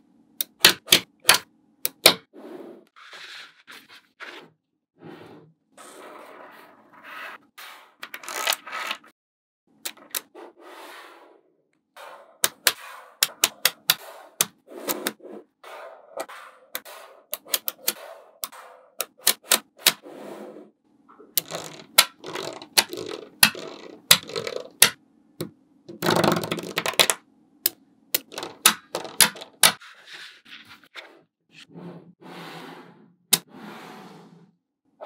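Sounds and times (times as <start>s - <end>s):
magnetic balls clicking: 12.4s - 15.1s, 21.3s - 25.0s, 25.9s - 29.8s
rows of balls rattling: 21.2s - 25.0s, 25.9s - 27.2s, 28.2s - 29.8s.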